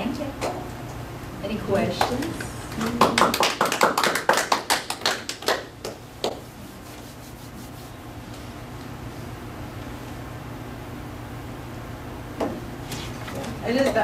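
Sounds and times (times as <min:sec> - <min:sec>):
low room hum: 0:00.0 - 0:14.0
audience applauding: 0:02.1 - 0:06.0.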